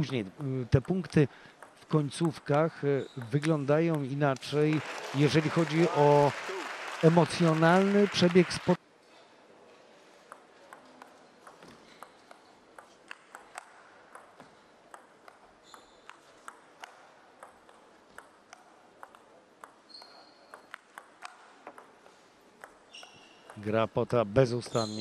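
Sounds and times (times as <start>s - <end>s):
table tennis ball clicks: 10.3s - 22.0s.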